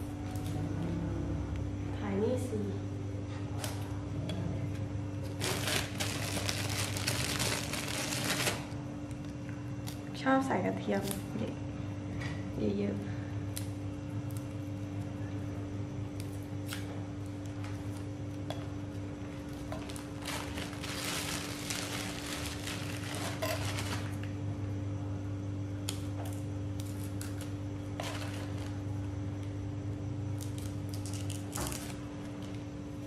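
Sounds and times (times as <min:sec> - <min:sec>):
steady low hum: 0:00.0 - 0:33.0
plastic bag crinkling: 0:05.3 - 0:08.8, 0:19.5 - 0:24.3, 0:28.0 - 0:28.8, 0:30.4 - 0:32.0.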